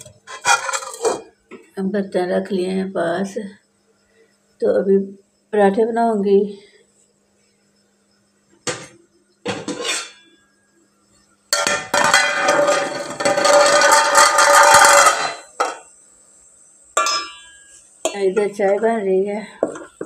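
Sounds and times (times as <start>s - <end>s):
steel pots clanking: 0.2s - 1.3s, 11.6s - 15.9s, 17.0s - 18.9s
metallic clattering and ringing: 17.0s - 17.8s.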